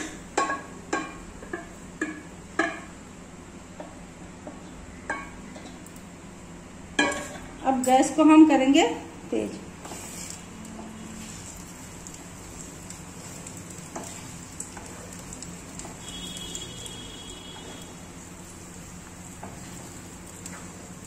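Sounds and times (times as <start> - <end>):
batter sizzling in oil: 9.7 - 21.0.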